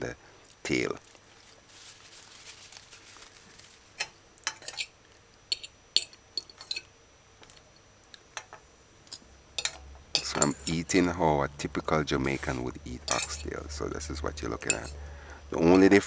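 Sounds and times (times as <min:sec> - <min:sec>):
fork clinking on china plate: 0:04.0 - 0:04.9, 0:05.5 - 0:06.9, 0:09.1 - 0:10.8, 0:13.1 - 0:13.5, 0:14.6 - 0:15.0.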